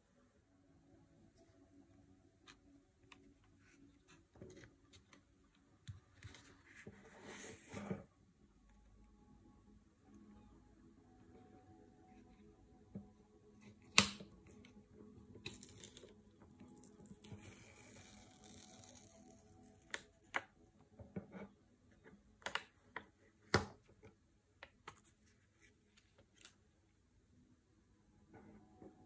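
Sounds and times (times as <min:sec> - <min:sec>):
plastic film crinkling: 0:16.8 - 0:20.1.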